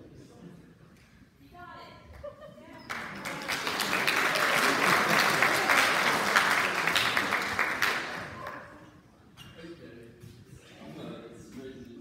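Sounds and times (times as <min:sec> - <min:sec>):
audience applauding: 0:02.9 - 0:08.7.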